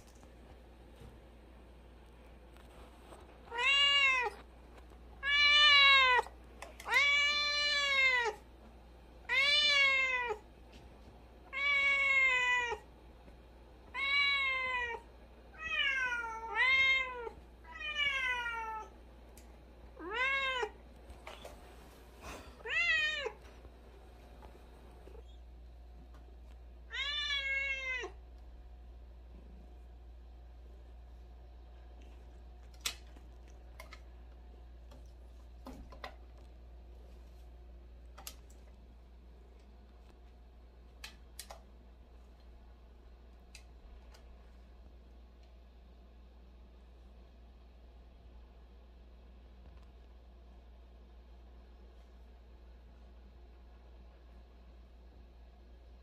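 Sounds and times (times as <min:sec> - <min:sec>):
cat meowing: 0:03.5 - 0:04.4, 0:05.2 - 0:08.4, 0:09.3 - 0:10.4, 0:11.5 - 0:12.8, 0:13.9 - 0:15.0, 0:15.6 - 0:18.9, 0:20.0 - 0:20.8, 0:26.9 - 0:28.2.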